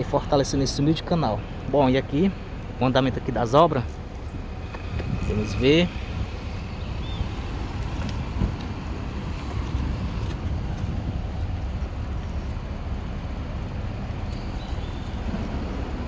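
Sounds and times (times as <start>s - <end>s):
faint street traffic: 0.0s - 16.0s
wind buffeting microphone: 4.0s - 16.0s.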